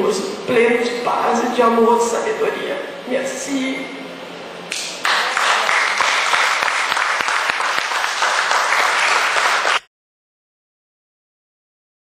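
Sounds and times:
audience applauding: 0:05.0 - 0:09.9.

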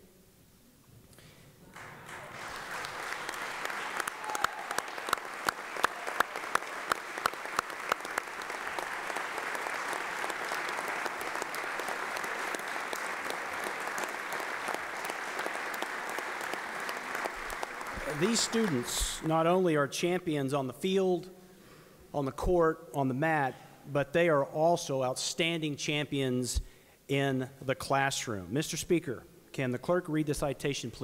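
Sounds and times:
crowd applauding: 0:01.7 - 0:19.6.

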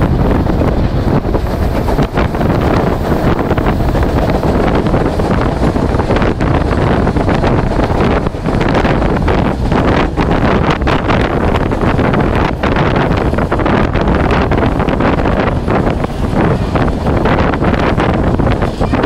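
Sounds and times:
train running noise: 0:00.0 - 0:19.0
wind buffeting microphone: 0:00.0 - 0:19.0.

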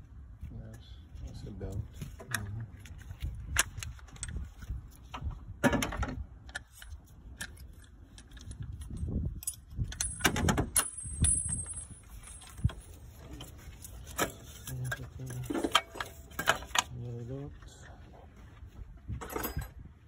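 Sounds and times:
metal parts rattling: 0:06.5 - 0:16.9, 0:19.2 - 0:19.8
metallic clattering with ring: 0:07.6 - 0:16.9, 0:19.2 - 0:19.8.

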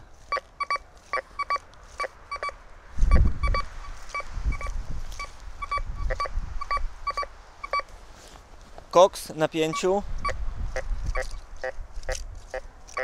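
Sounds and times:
metal detector beeps: 0:00.3 - 0:07.9, 0:09.7 - 0:10.4.

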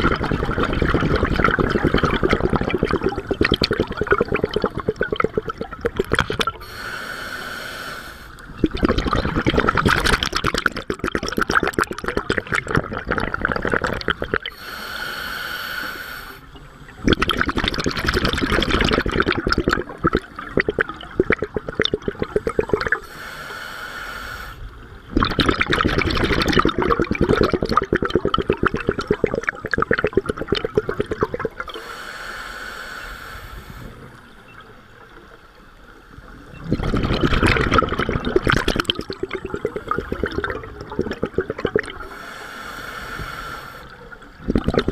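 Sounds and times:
exhaust bubbles crackling: 0:00.0 - 0:06.6, 0:08.5 - 0:14.5, 0:16.9 - 0:23.0, 0:25.1 - 0:31.7, 0:36.5 - 0:42.1, 0:44.3 - 0:44.9
regulator inhalation hiss: 0:06.6 - 0:08.4, 0:14.5 - 0:16.8, 0:22.4 - 0:24.7, 0:31.7 - 0:34.2, 0:42.0 - 0:44.0.

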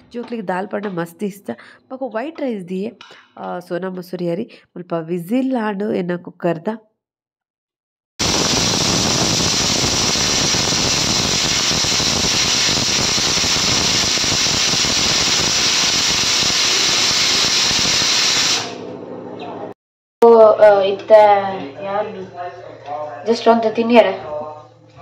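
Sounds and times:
pressure cooker steam hissing: 0:08.2 - 0:18.8.

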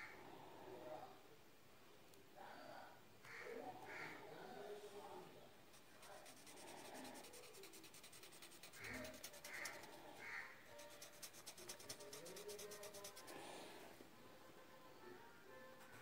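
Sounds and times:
pencil shading on paper: 0:05.8 - 0:13.7, 0:15.8 - 0:16.0.

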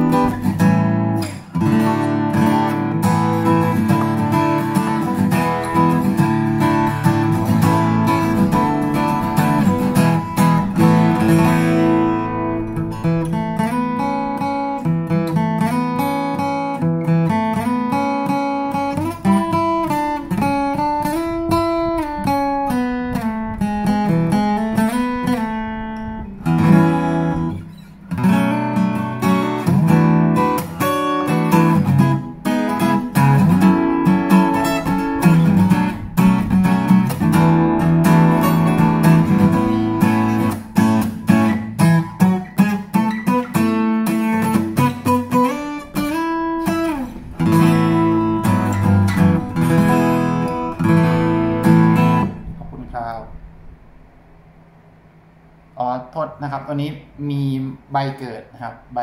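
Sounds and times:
acoustic guitar playing: 0:00.0 - 0:55.9.

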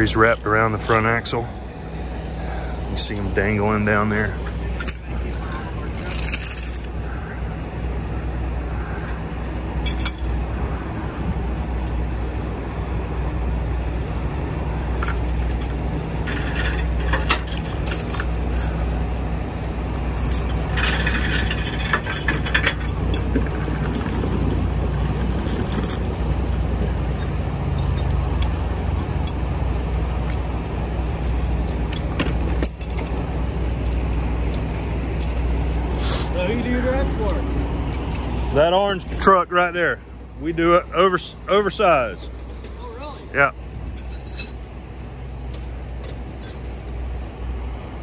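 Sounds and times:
diesel truck engine idling: 0:00.0 - 0:48.0
chains clinking and scraping: 0:02.8 - 0:07.2, 0:09.8 - 0:10.5, 0:14.8 - 0:29.5, 0:31.2 - 0:39.5, 0:43.8 - 0:46.7.

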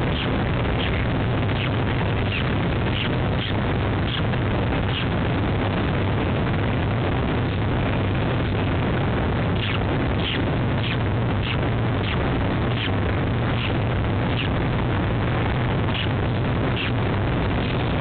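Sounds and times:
bird chicks peeping: 0:00.0 - 0:04.2, 0:09.6 - 0:14.6
loud rumbling noise: 0:00.0 - 0:18.0.

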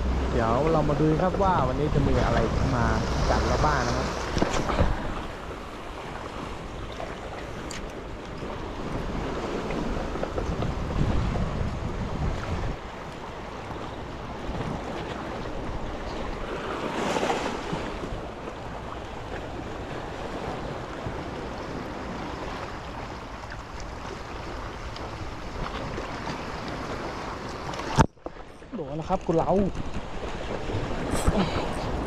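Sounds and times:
wind buffeting microphone: 0:00.0 - 0:23.0
waves washing against rocks: 0:00.0 - 0:28.0, 0:29.2 - 0:32.0.

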